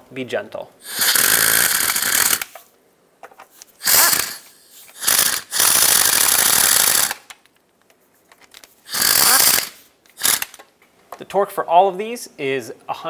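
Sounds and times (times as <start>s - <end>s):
ratchet clicking rapidly: 0.9s - 2.6s, 3.8s - 7.3s, 8.9s - 10.6s.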